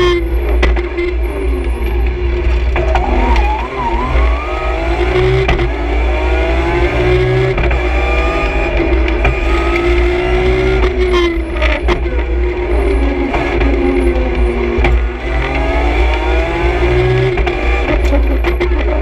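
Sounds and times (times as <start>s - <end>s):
wavering whine: 1.3s - 7.4s
car engine revving from inside: 2.8s - 11.2s, 12.8s - 18.1s.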